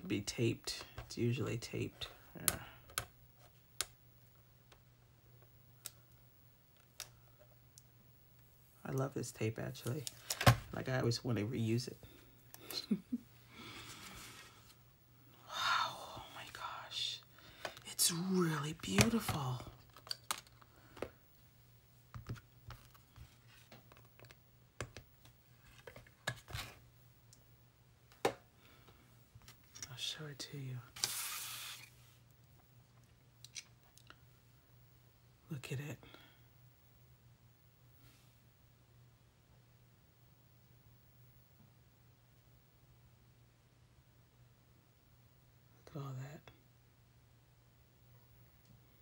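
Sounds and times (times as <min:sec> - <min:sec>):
faint low hum: 0:00.0 - 0:31.0.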